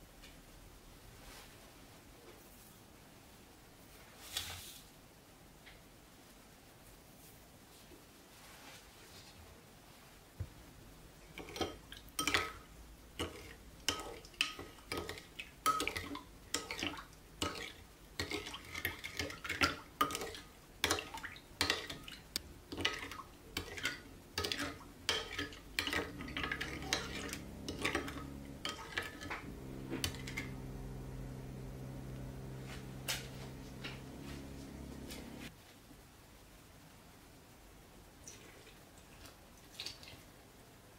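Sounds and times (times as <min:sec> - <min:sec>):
steady low hum: 0:22.2 - 0:35.5.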